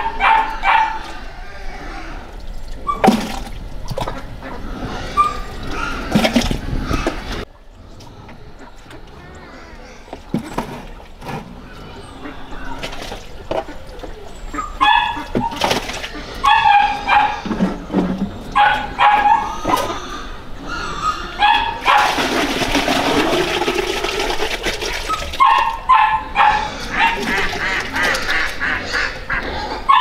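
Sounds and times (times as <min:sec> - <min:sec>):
dogs whining and yipping: 0:00.0 - 0:01.4, 0:02.8 - 0:03.1, 0:04.4 - 0:07.3, 0:14.1 - 0:22.2, 0:25.0 - 0:27.3, 0:29.7 - 0:30.0.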